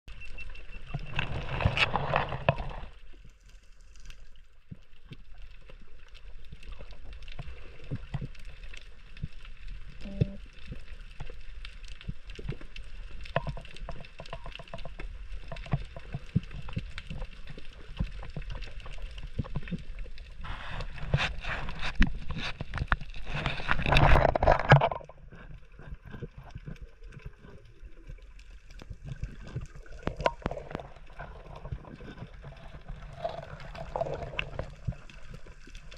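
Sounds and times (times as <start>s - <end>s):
underwater crackle of fine clicks: 0.2s - 35.9s
underwater rushing water bursts: 29.1s - 35.9s.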